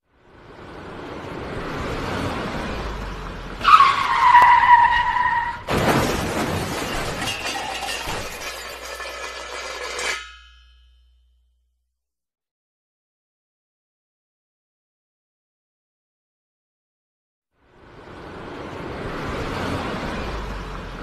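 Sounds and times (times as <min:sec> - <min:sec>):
vehicle running: 0:00.0 - 0:09.6, 0:17.6 - 0:21.0
tyres screeching in a skid: 0:02.1 - 0:10.2
crash with shattering debris: 0:05.5 - 0:10.4.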